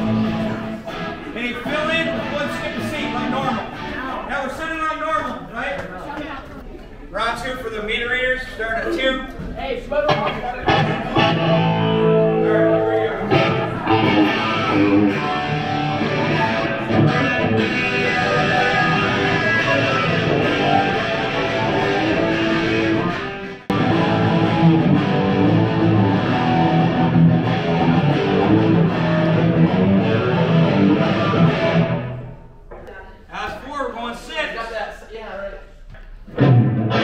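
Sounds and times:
loud electric guitar: 0.0 - 4.3, 10.1 - 32.5, 36.3 - 37.0.

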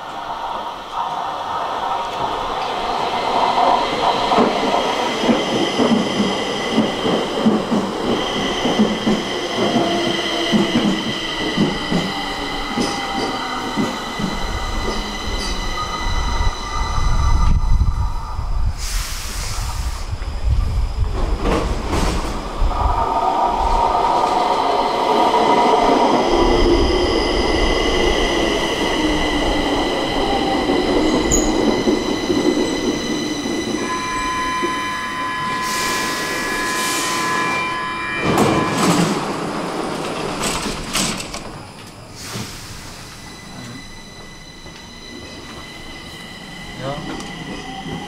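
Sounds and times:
train wheels rolling with whine: 0.0 - 48.0
train doors knocking open: 38.2 - 42.6.

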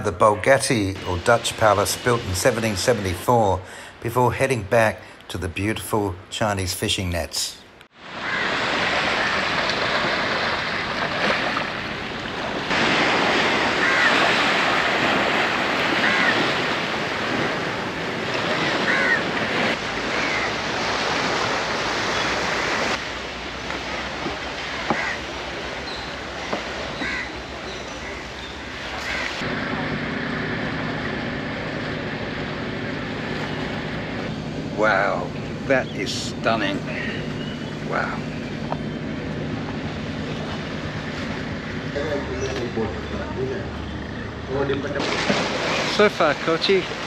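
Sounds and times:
waves washing on shore: 0.7 - 4.2, 8.0 - 38.3, 44.7 - 47.0
crow-like cawing: 8.1 - 9.6, 13.6 - 14.8, 15.8 - 16.8, 18.5 - 20.7, 24.6 - 25.3, 26.4 - 29.4
steady low hum: 27.4 - 47.0.

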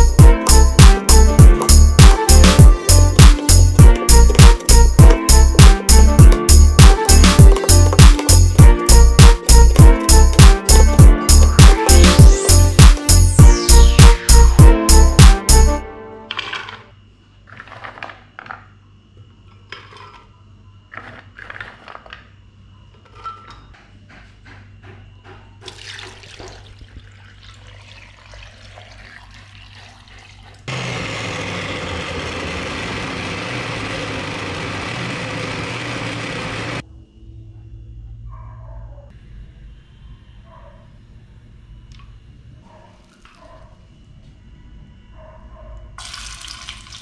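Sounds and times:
liquid pouring: 25.7 - 30.7, 46.0 - 47.0
blender motor running: 30.7 - 36.8.

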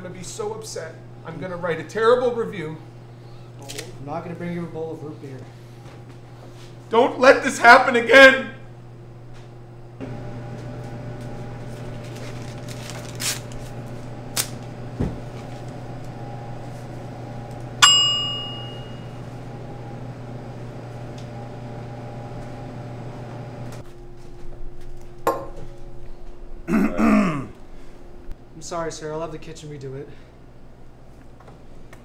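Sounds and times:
electrical hum: 0.0 - 32.0
bright ding: 17.8 - 19.2.

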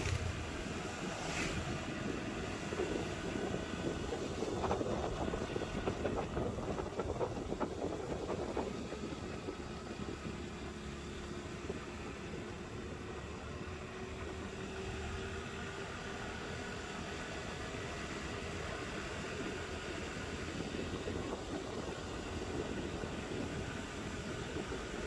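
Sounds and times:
wind noise on microphone: 0.0 - 13.3, 18.8 - 25.0
motorcycle engine running: 0.0 - 25.0.

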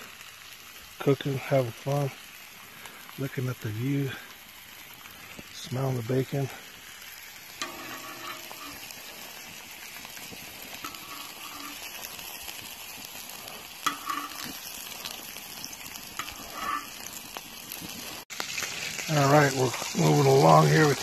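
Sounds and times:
bacon sizzling: 0.0 - 21.0
metal spatula scraping: 7.5 - 18.2.

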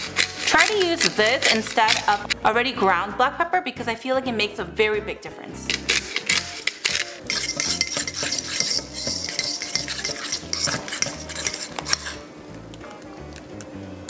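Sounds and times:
fork scraping a metal bowl: 0.0 - 2.4, 5.7 - 12.2.

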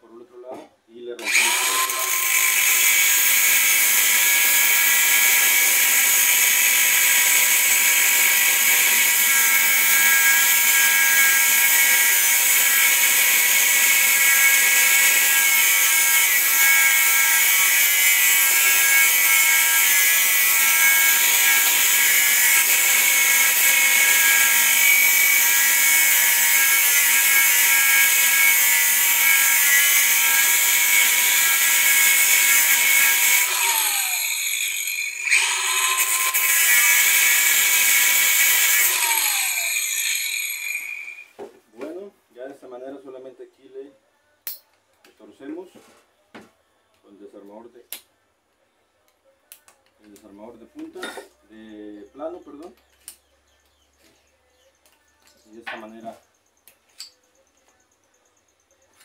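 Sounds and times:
angle grinder motor whine: 1.2 - 3.3, 31.8 - 41.2
disc grinding steel: 7.0 - 41.3.

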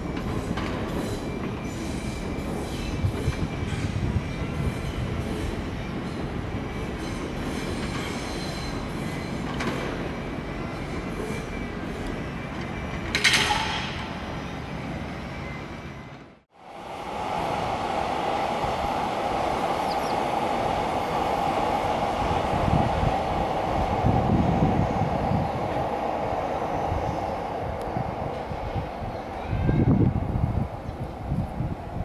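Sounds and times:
train wheel squeal: 0.0 - 16.2
express train passing: 0.0 - 32.0
train rolling rumble: 0.0 - 32.0.

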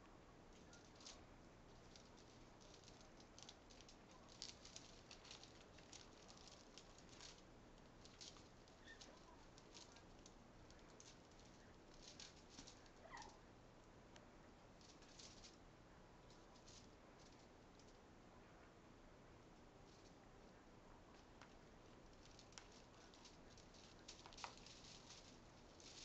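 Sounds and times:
parrot beak clicks and rustles: 0.6 - 13.4, 21.2 - 26.0.

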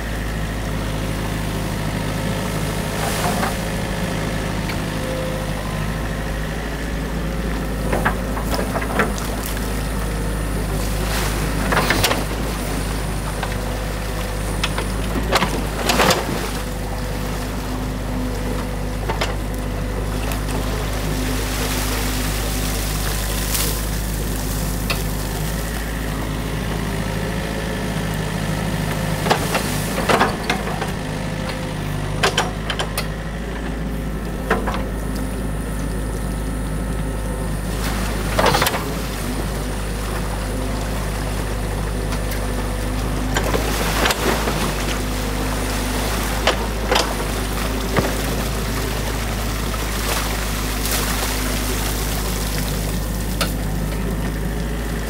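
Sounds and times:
flowing water: 0.0 - 32.7, 33.5 - 55.0
excavator diesel engine running: 0.0 - 55.0
branches cracking and knocking: 46.2 - 53.6.

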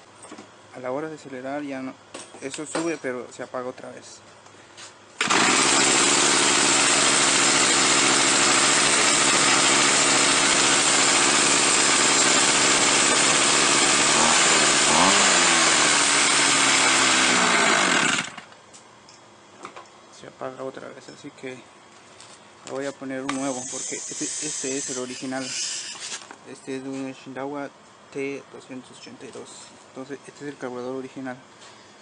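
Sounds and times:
string trimmer engine: 5.2 - 18.5, 23.3 - 26.2.

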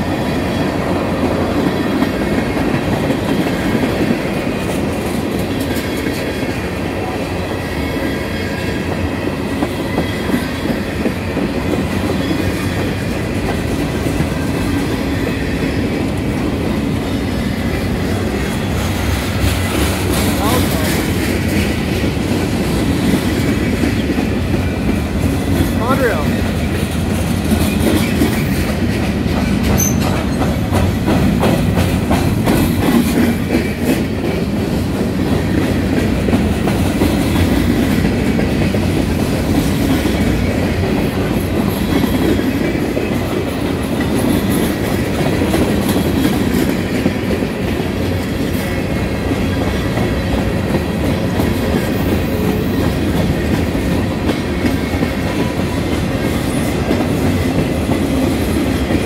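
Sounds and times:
steel wheels rumbling on rail: 0.0 - 59.0
wheels clicking over rail joints: 17.6 - 59.0.

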